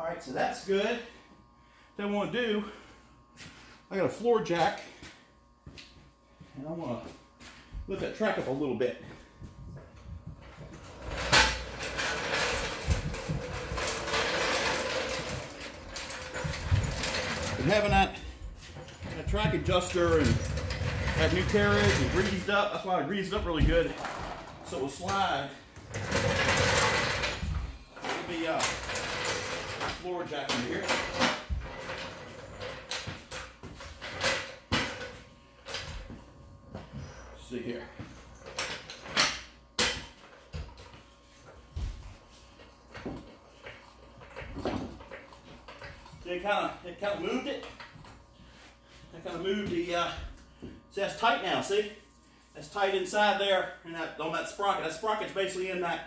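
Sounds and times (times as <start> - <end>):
floor jack rattling on concrete: 10.7 - 18.2, 18.8 - 22.5, 25.9 - 30.0.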